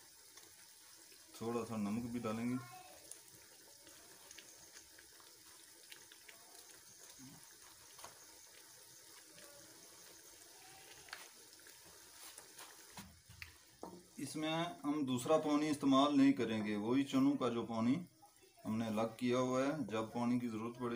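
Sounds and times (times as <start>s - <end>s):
sauce sizzling in hot oil: 0.0s - 20.9s.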